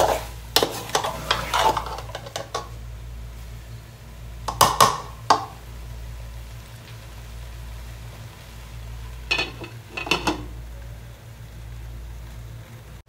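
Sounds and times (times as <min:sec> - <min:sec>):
metal spatula scraping a pot: 0:00.0 - 0:02.7, 0:09.3 - 0:10.5
spatula knocking against pot: 0:04.5 - 0:05.6.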